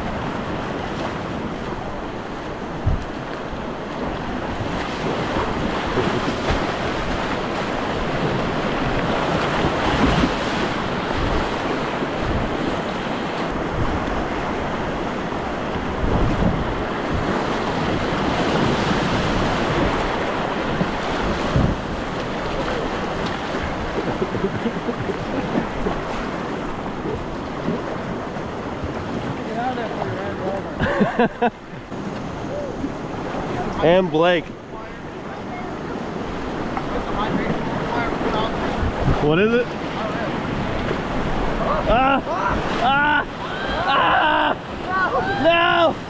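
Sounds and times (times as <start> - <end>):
wind buffeting microphone: 0.0 - 33.8, 34.4 - 46.0
river rushing over rapids: 31.6 - 46.0.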